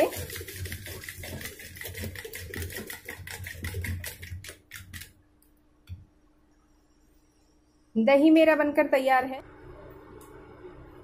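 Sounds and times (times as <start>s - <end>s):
wooden churner clattering in pot: 0.0s - 5.0s.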